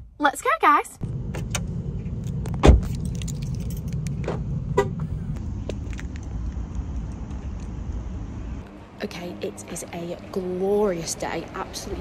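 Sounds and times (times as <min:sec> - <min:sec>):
car door slamming: 0:02.6 - 0:02.9.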